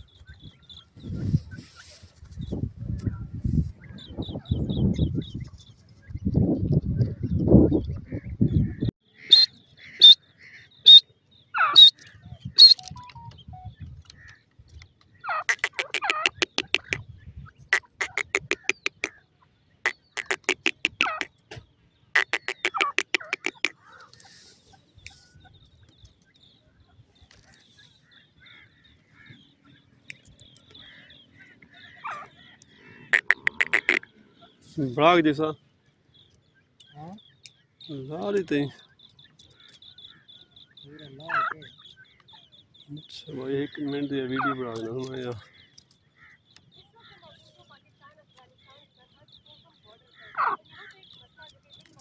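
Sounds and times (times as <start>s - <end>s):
francolin rattling calls: 8.6s - 14.5s, 15.1s - 21.5s, 22.1s - 26.1s, 27.4s - 35.5s
francolin high chirps: 9.3s - 10.2s, 10.8s - 13.9s, 19.9s - 21.3s, 22.2s - 25.5s, 33.1s - 34.1s.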